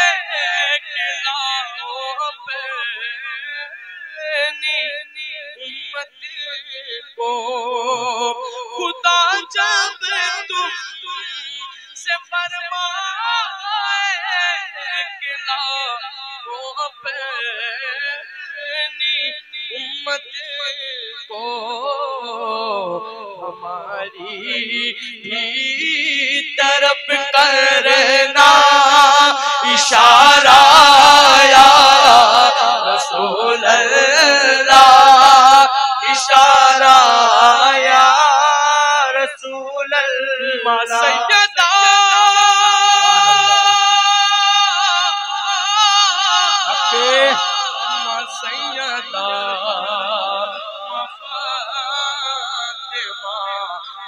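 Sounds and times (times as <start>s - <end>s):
men singing through microphones: 7.2s - 10.8s, 21.3s - 54.0s.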